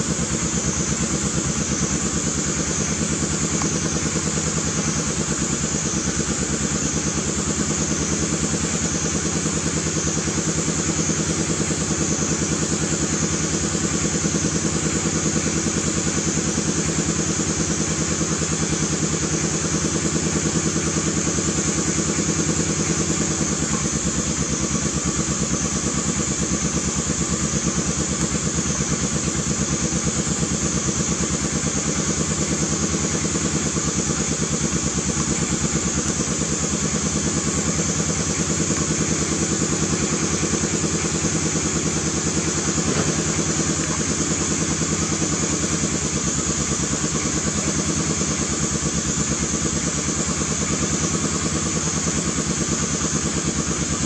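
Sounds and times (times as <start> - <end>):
small engine idling: 0.0 - 54.0.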